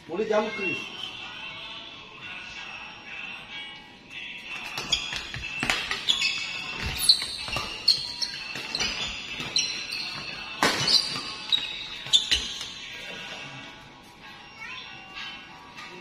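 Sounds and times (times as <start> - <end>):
rackets hitting shuttlecock: 4.6 - 12.8
shoes squeaking on court floor: 4.6 - 13.3.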